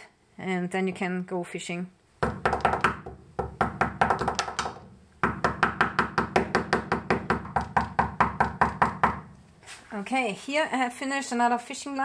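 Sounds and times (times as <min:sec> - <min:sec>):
stone knocking on stone: 0:02.2 - 0:09.2.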